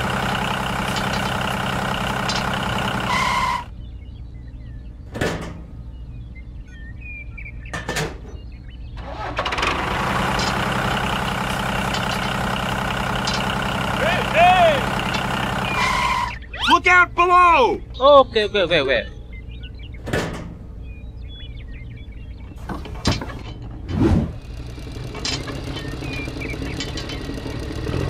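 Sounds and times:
tractor engine running: 0:00.0 - 0:03.7, 0:09.0 - 0:18.1, 0:19.4 - 0:28.0.

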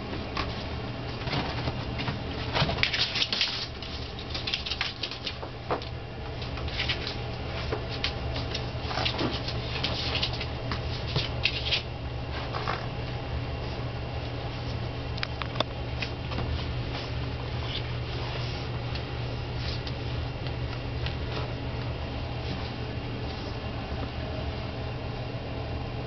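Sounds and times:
puppy paws scrabbling: 0:00.0 - 0:13.0
steady low hum: 0:00.0 - 0:26.0.

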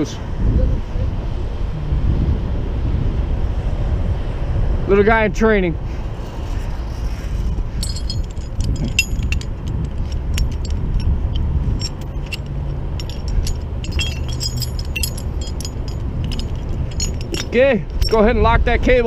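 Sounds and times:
vehicle engine rumble: 0:00.0 - 0:19.0
metal rigging clinking: 0:06.2 - 0:18.5.

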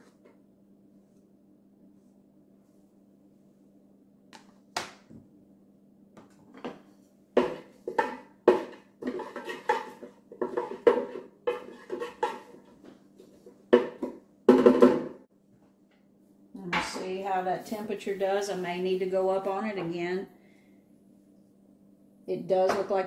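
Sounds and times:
wooden spoon scraping a pot: 0:06.6 - 0:14.0.

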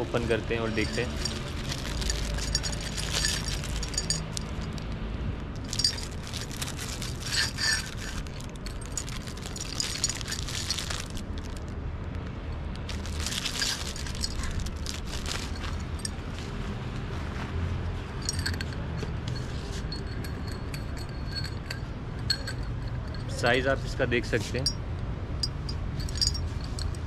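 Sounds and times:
plastic wrap crinkling: 0:00.8 - 0:04.8, 0:05.6 - 0:11.7, 0:12.8 - 0:16.1.

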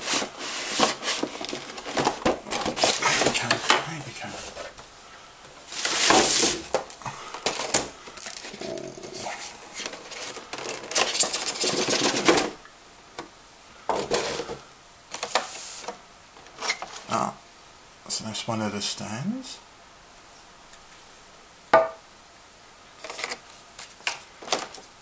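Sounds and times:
plastic packaging crackling: 0:00.0 - 0:04.8, 0:05.6 - 0:08.9, 0:09.7 - 0:12.6.

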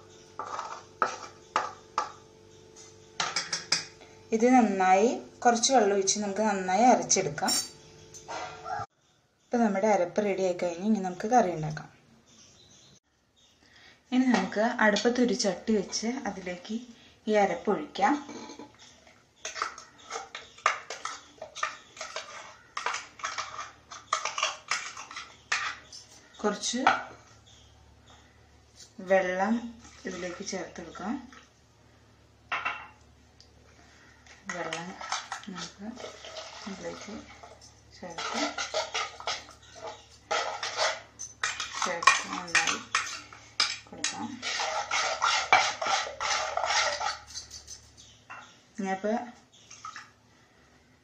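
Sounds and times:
stirring in a clay pot: 0:00.0 - 0:02.2, 0:14.3 - 0:31.6, 0:33.6 - 0:48.6
metal spoon scraping a steel jar: 0:07.4 - 0:07.8, 0:19.4 - 0:26.2, 0:34.5 - 0:48.2.

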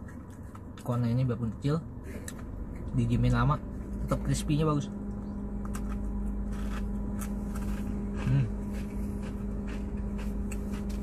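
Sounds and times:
car engine hum: 0:00.0 - 0:11.0
ice cream cone crunching: 0:05.0 - 0:11.0.

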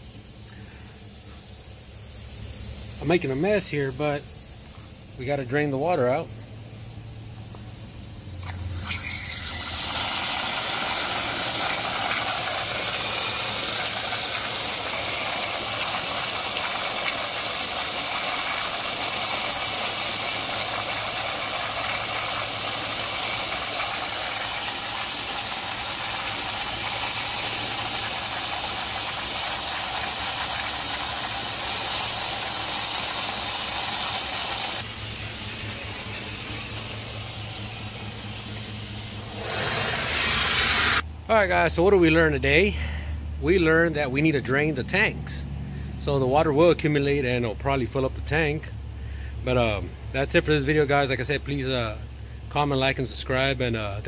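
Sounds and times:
water jetting from drain valve: 0:08.3 - 0:41.0.

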